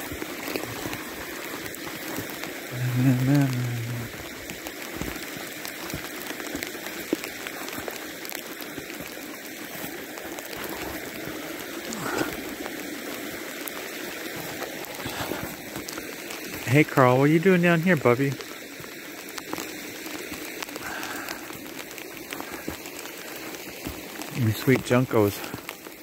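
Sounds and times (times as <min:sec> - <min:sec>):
brook running over rocks: 0:00.0 - 0:26.0.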